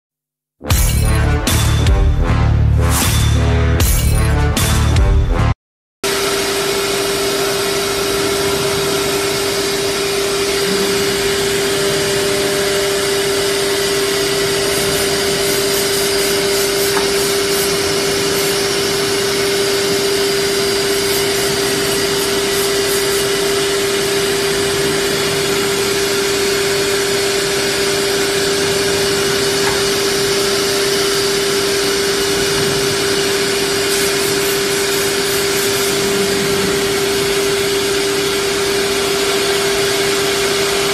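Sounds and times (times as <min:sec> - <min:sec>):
router machine whine: 0:06.1 - 0:40.9
dust extraction hiss: 0:07.1 - 0:40.8.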